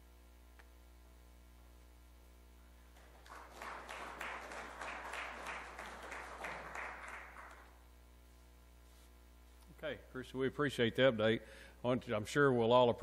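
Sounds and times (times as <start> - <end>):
low electrical hum: 0.0 - 13.0
audience applauding: 3.0 - 7.8.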